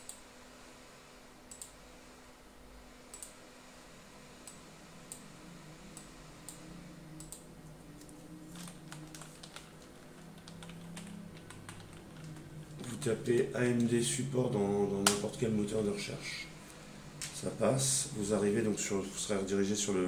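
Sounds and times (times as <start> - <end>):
typing on computer keyboard: 8.6 - 12.5.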